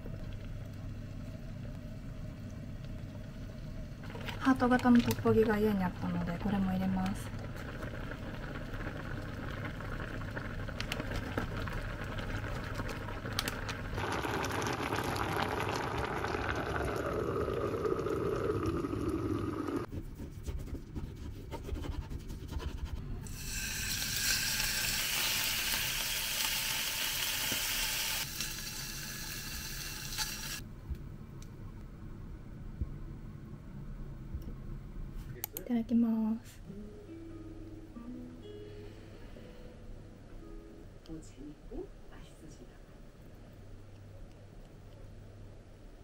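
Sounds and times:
liquid pouring falling pitch: 13.2s - 19.9s
beef sizzling in hot pan: 23.3s - 30.6s.

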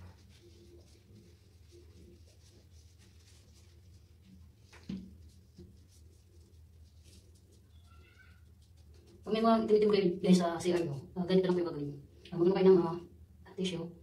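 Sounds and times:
gloved hands handling plastic bottle: 0.0s - 7.7s
low room hum: 0.0s - 14.0s.

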